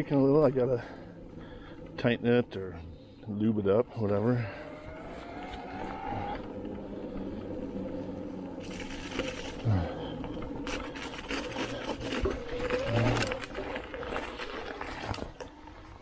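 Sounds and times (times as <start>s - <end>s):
tyre noise on trail: 4.0s - 16.0s
electric bike motor whining: 4.2s - 15.5s
bike clicking and rattling: 6.4s - 15.7s.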